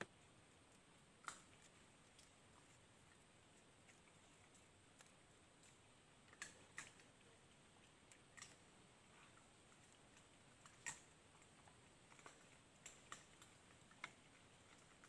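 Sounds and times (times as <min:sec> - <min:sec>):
faint sharp clicks: 0:03.6 - 0:07.1, 0:12.1 - 0:15.0.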